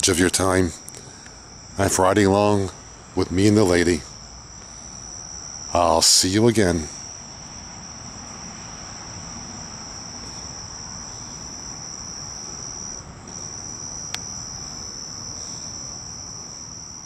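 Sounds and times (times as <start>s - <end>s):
crickets trilling: 0.0s - 17.0s.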